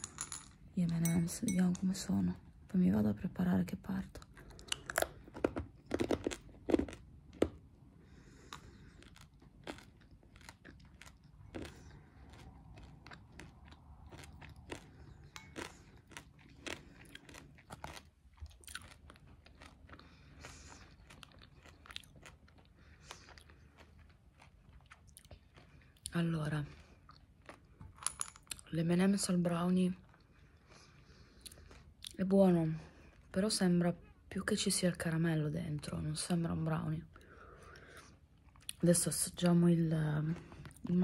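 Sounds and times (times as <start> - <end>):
chewing crunchy candy: 4.0 - 28.7, 29.8 - 33.4, 40.2 - 41.0.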